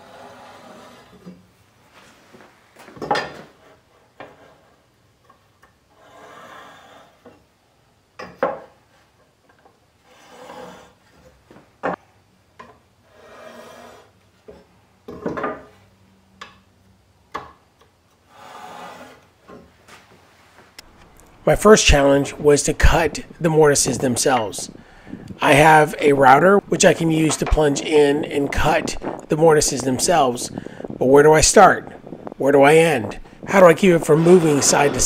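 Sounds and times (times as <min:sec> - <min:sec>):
marking tool scraping: 0:00.0 - 0:01.3, 0:10.0 - 0:11.0, 0:13.1 - 0:14.1, 0:18.3 - 0:19.3.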